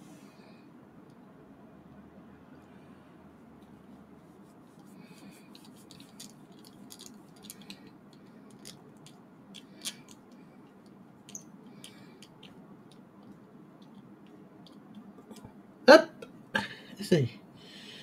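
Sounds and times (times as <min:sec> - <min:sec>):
small metal parts clicking: 0:05.6 - 0:10.4, 0:11.3 - 0:12.6.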